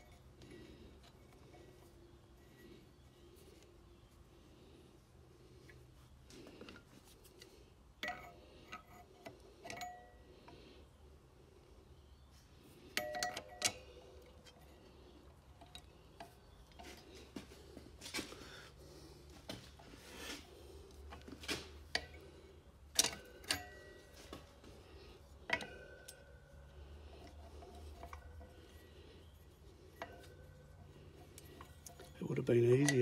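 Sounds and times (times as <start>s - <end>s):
small metallic clicks: 12.8s - 17.1s, 20.9s - 33.0s.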